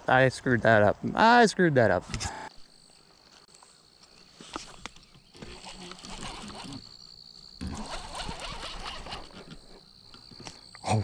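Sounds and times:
fishing reel clicking and rustling: 5.0s - 6.8s.

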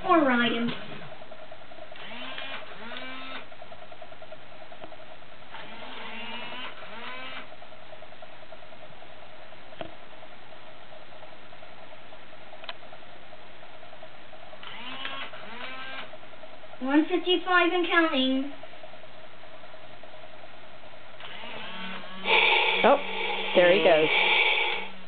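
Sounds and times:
toy motor whirring: 1.9s - 3.5s, 5.5s - 7.5s, 14.6s - 16.1s, 21.2s - 25.0s.

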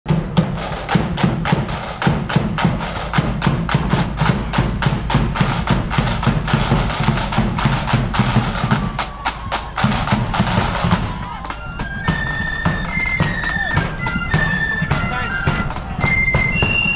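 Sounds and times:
marching drums playing march beat: 0.1s - 16.9s
thin whistle-like tone: 11.6s - 16.9s.

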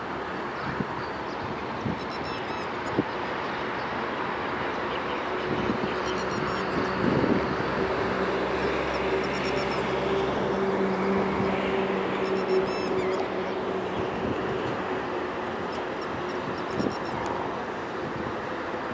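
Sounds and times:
lapwing calling: 2.0s - 2.8s, 5.9s - 7.0s, 8.6s - 10.1s, 12.1s - 14.0s, 15.7s - 17.4s.

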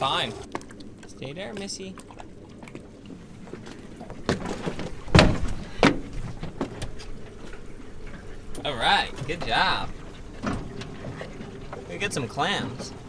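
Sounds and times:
dull thuds: 3.4s - 7.6s.

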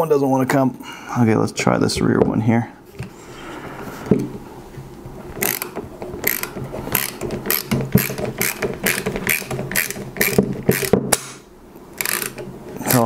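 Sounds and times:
socket ratchet clicking: 5.4s - 11.0s, 12.0s - 13.0s.

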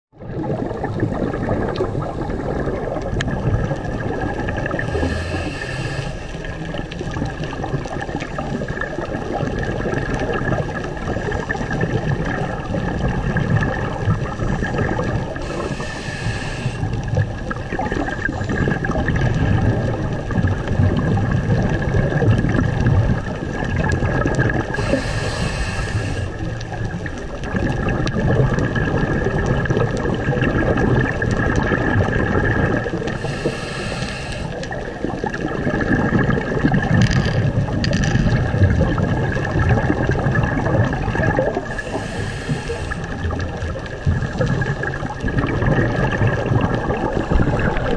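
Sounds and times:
underwater rushing noise: 0.1s - 47.9s
scuba regulator breath hiss: 4.8s - 6.6s, 14.4s - 17.0s, 24.7s - 26.5s, 33.1s - 34.7s, 41.6s - 43.2s.

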